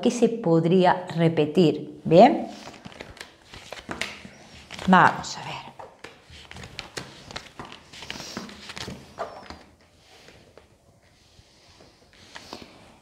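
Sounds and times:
cards tapping and sliding: 2.8s - 4.9s, 5.8s - 10.7s.

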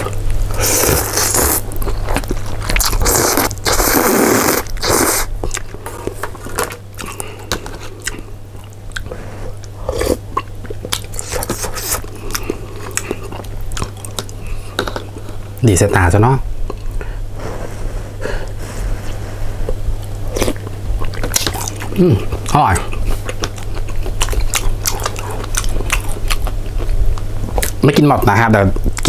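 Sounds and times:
person chewing: 0.0s - 15.6s, 16.6s - 17.2s, 18.2s - 27.8s
person slurping noodles: 0.6s - 1.6s, 2.9s - 5.3s.

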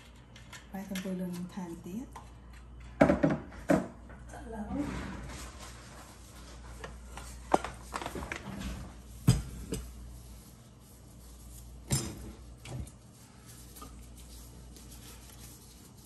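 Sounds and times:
kitchenware knocking and clinking: 3.0s - 4.0s, 11.9s - 12.4s.

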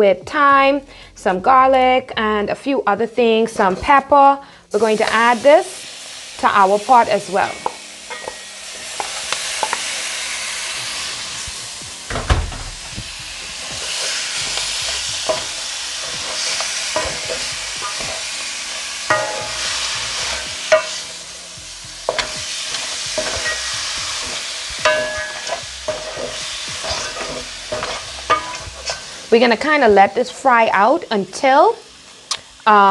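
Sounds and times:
meat sizzling in a pot: 2.8s - 12.1s, 12.7s - 32.9s
dull thump: 12.1s - 13.2s
wooden spoon scraping metal pot: 22.1s - 29.2s.

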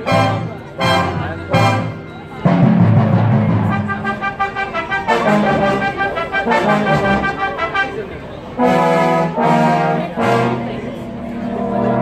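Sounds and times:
brass band playing: 0.0s - 12.0s.

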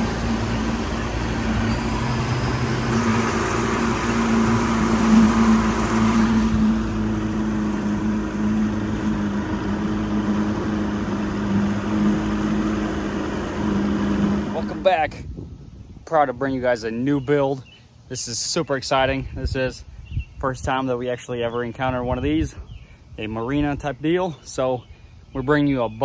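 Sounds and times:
engine humming steadily: 0.0s - 18.2s.

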